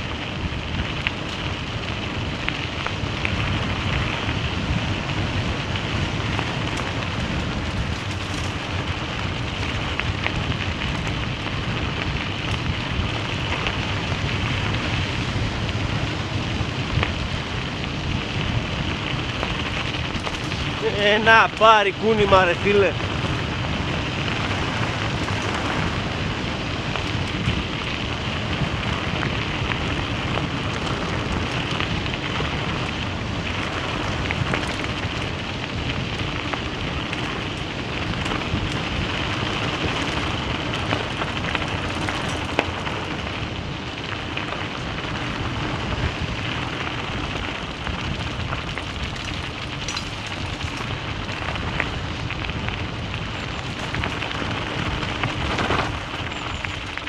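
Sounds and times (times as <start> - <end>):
tyres crunching on gravel: 0.1 - 57.0
small stone clicks: 49.2 - 50.6.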